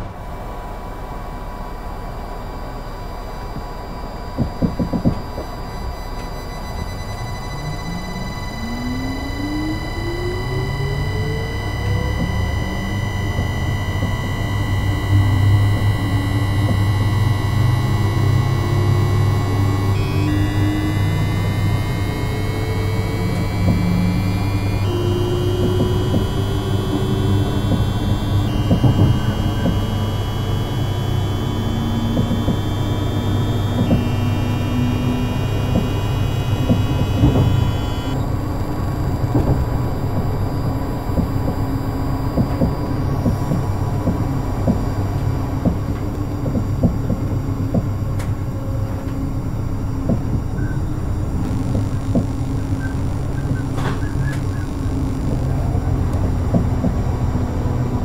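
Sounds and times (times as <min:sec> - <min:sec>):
train inverter whine stepping pitch: 0:00.0 - 0:58.0
clicks: 0:07.8 - 0:38.4, 0:39.0 - 0:44.8.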